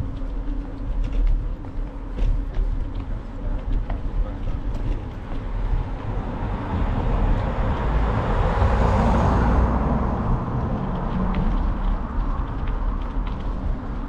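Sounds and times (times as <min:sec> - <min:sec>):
steady low rumble: 0:00.0 - 0:14.0
car passing: 0:04.6 - 0:14.0.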